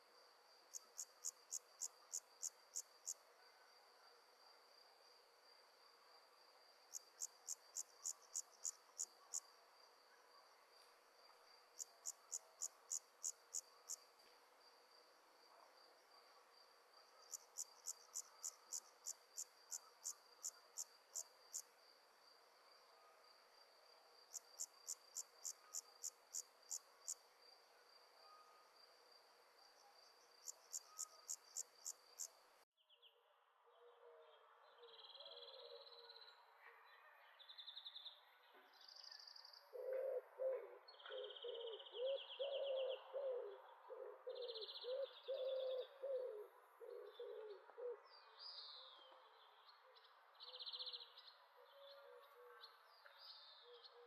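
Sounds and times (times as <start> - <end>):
insects chirping: 0.3 - 3.3, 4.7 - 32.5.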